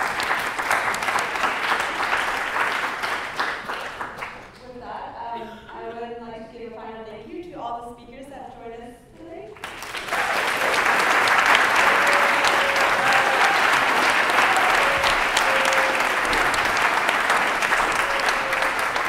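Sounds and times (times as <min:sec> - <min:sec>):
audience applauding: 0:00.0 - 0:04.6, 0:09.6 - 0:19.0.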